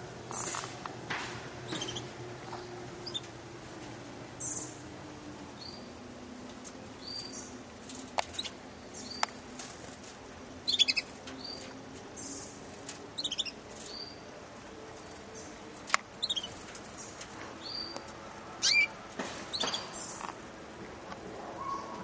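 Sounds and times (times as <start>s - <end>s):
canaries chirping: 0.0s - 0.7s, 1.6s - 3.4s, 4.4s - 4.9s, 5.5s - 6.0s, 6.6s - 20.3s.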